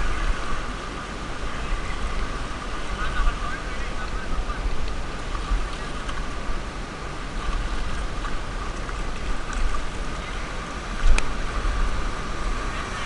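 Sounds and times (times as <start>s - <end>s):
sea surf washing over rocks: 0.0s - 13.0s
wind rumbling on microphone: 0.0s - 13.0s.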